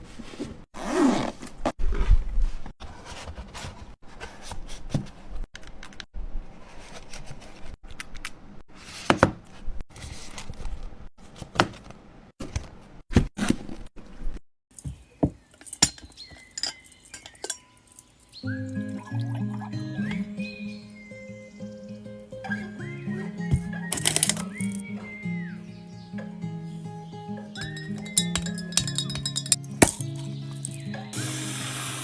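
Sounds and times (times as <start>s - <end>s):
drinking glass clinking: 15.6s - 18.1s, 27.6s - 30.8s
objects clicking into plastic case: 23.6s - 24.8s.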